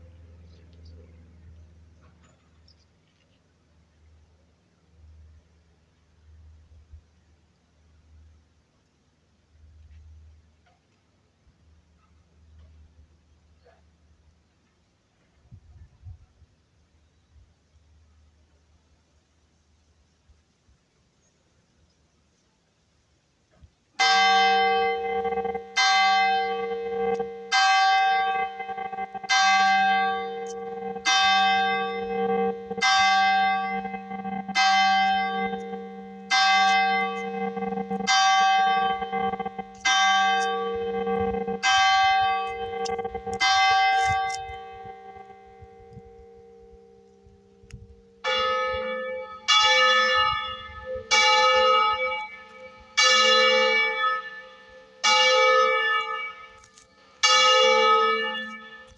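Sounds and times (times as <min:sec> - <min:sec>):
higher church bell ringing: 0:24.0 - 0:58.9
large church bell tolling: 0:24.0 - 0:58.9.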